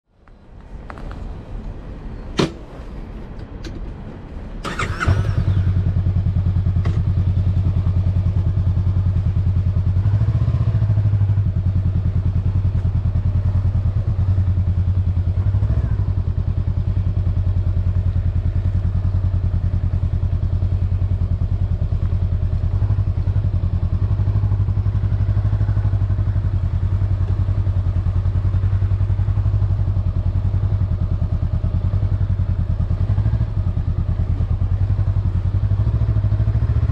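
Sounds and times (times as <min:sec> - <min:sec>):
motorcycle starter cranking: 0:04.6 - 0:05.6
motorcycle engine idling: 0:04.6 - 0:36.9.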